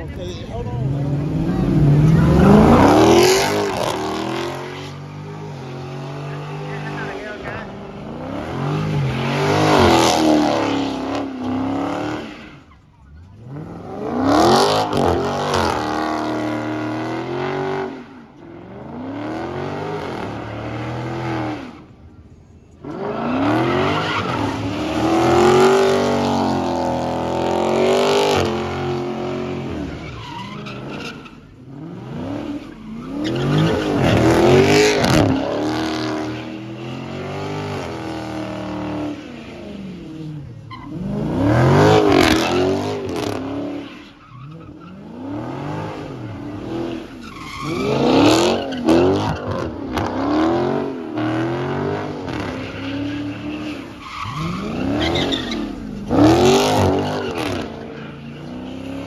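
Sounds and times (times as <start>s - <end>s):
car engine revving hard: 0.6s - 12.6s, 13.2s - 21.9s, 22.8s - 43.8s, 44.5s - 59.0s
tyres screeching: 27.8s - 37.2s, 40.6s - 50.2s, 51.9s - 59.0s.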